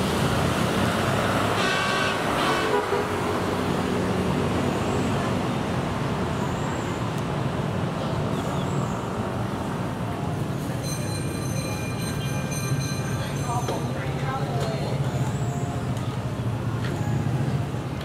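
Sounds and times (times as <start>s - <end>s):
city street traffic: 0.0s - 18.0s
car horn toot: 1.6s - 3.2s.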